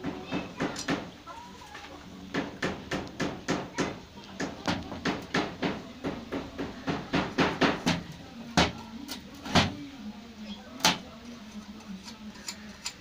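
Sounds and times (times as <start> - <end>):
rapid sharp knocking: 2.3 - 8.0.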